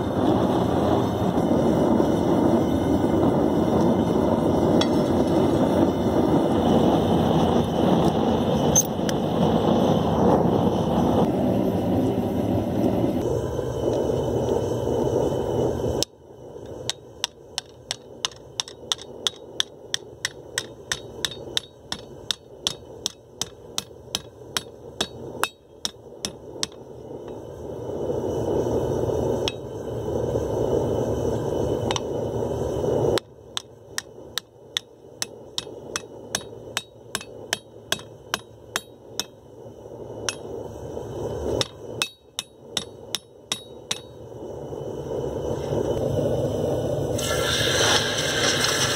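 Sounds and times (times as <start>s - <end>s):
steady rushing noise: 0.0s - 47.2s
hammer striking steel plate: 16.9s - 26.8s, 29.4s - 29.7s, 33.2s - 39.4s, 41.6s - 44.2s.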